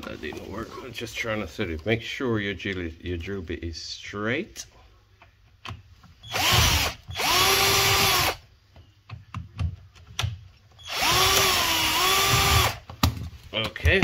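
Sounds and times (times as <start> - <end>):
drill-driver motor whining: 6.2 - 8.4, 10.8 - 12.8.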